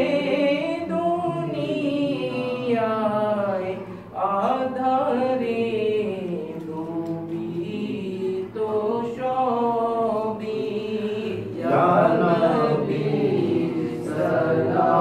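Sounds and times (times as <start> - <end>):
man singing unaccompanied: 0.0 - 15.0.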